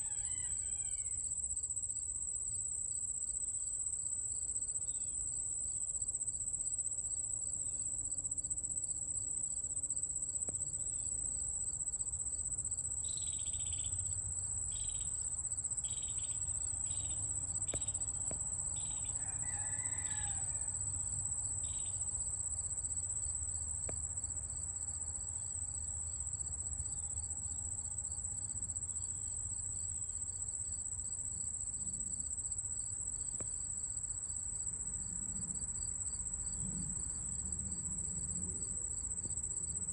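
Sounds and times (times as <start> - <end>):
insect high-pitched trill: 0.0 - 6.8, 12.4 - 23.3.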